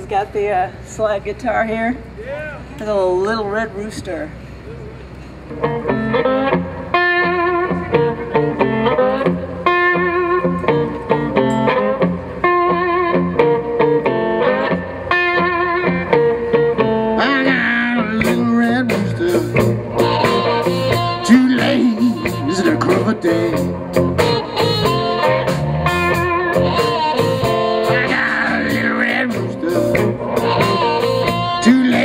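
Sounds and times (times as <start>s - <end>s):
electric slide guitar: 5.2s - 32.0s
drums and cymbals: 18.3s - 28.1s.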